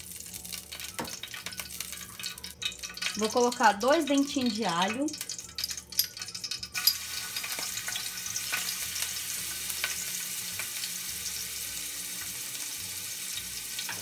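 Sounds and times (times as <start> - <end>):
garlic sizzling in oil: 0.0 - 14.0
small crackling pops: 0.2 - 9.1.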